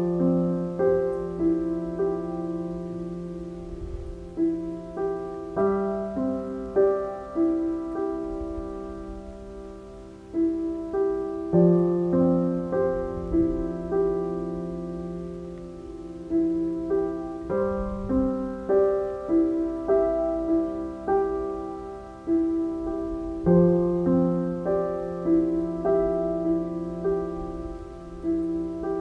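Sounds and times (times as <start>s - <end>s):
slow gentle piano music: 0.0s - 29.0s.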